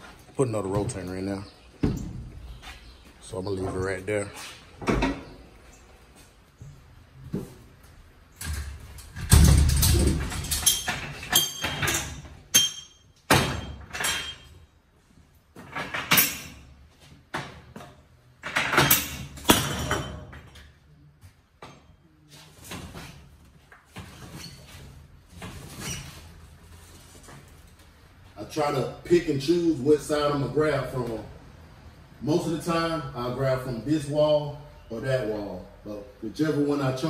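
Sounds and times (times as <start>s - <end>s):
metal cages clanking and rattling: 8.4s - 14.6s, 17.4s - 20.8s.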